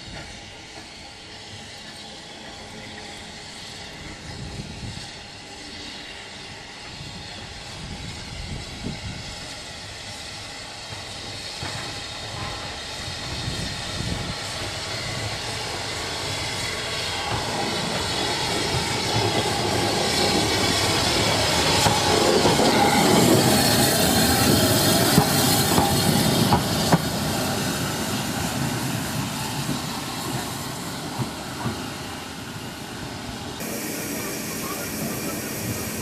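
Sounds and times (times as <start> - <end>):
train wheels clacking: 10.9 - 32.1.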